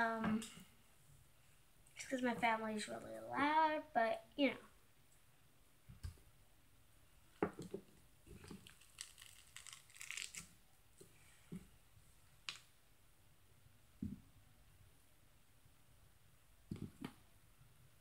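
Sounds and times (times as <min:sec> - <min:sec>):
slime squishing and crackling: 0:08.3 - 0:10.6.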